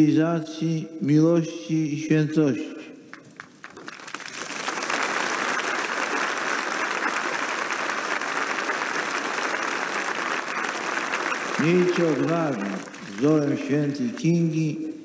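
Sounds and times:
large crowd applauding: 3.2s - 14.0s.

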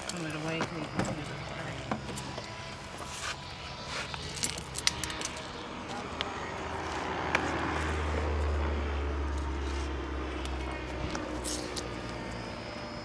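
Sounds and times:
passing vehicle rumble: 4.7s - 12.5s.

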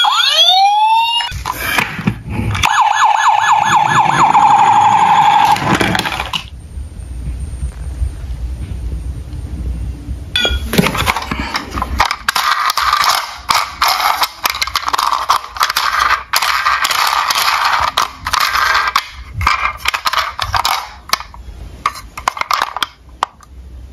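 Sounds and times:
toy cars rattling in cardboard box: 10.8s - 21.2s.

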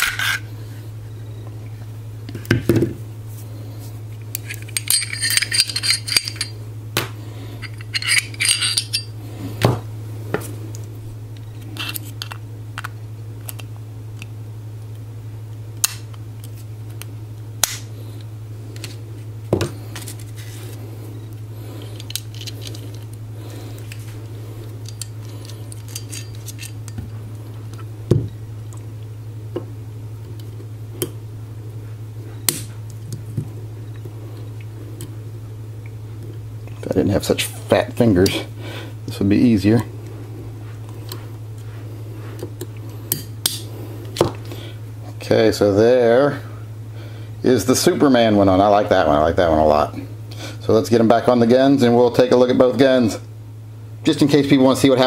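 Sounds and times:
steady low hum: 0.0s - 55.0s
metal parts clicking and clinking: 4.4s - 6.5s, 7.6s - 9.1s, 24.8s - 27.0s.

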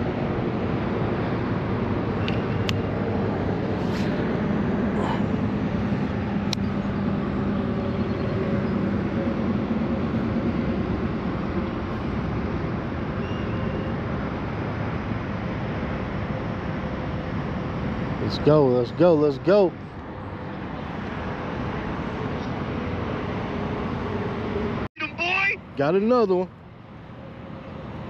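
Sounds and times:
mechanical rumble with low hum: 0.0s - 18.9s.

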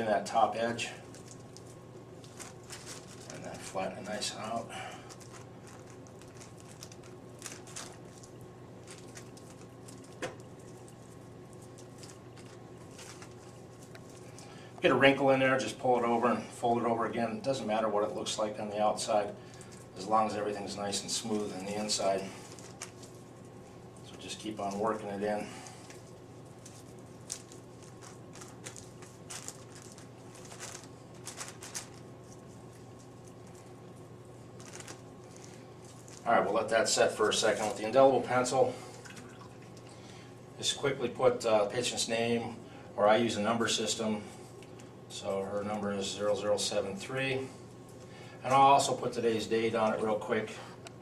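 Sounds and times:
low steady hum: 0.0s - 51.0s
wet patting and squishing: 38.8s - 40.0s.

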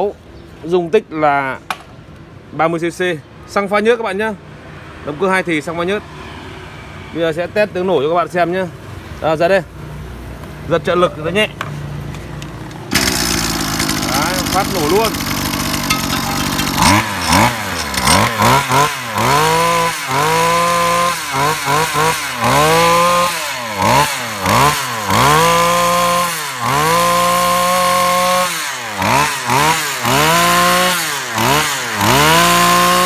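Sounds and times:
brush cutter engine revving: 12.3s - 33.0s.

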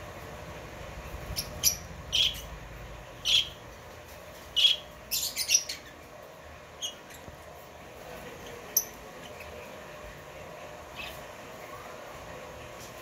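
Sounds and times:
lovebirds chirping: 1.1s - 3.8s, 4.4s - 10.2s.

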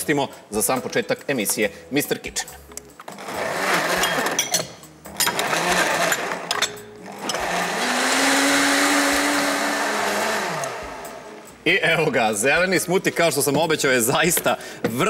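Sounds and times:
blender motor running: 3.2s - 4.4s, 5.2s - 6.5s, 7.1s - 11.5s.

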